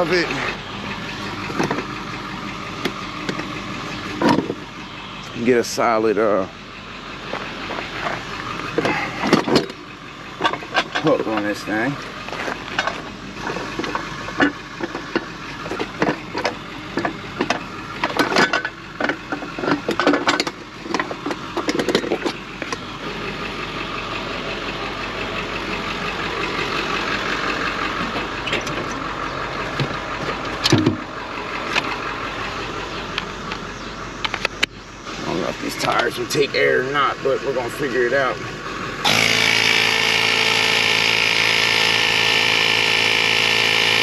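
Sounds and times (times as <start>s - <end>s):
metallic knocks of towing gear: 8.0s - 9.8s, 10.4s - 11.8s, 12.4s - 22.9s
motor running: 39.0s - 44.0s.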